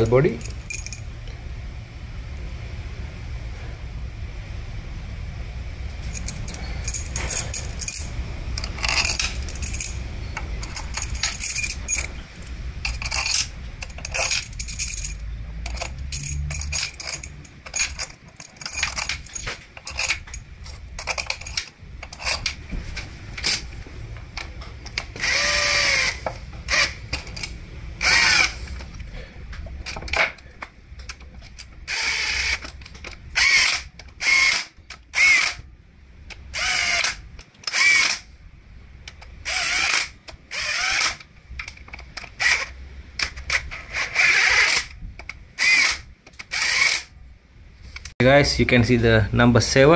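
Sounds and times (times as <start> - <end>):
bolts clinking against metal: 0.0 - 1.1, 6.0 - 22.7
cordless drill-driver whirring: 25.2 - 27.0, 28.0 - 28.6, 31.9 - 32.6, 33.4 - 35.6, 36.6 - 38.2, 39.5 - 41.2, 43.5 - 44.9, 45.6 - 47.1.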